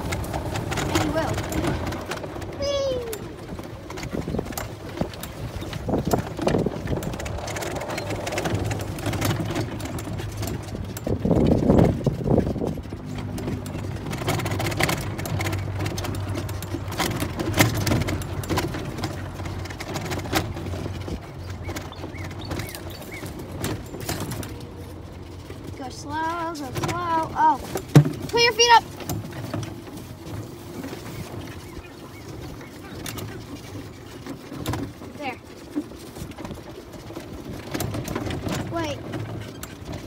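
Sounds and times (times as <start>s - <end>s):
cart rattling over bumps: 0.0s - 40.0s
golf cart humming: 0.0s - 40.0s.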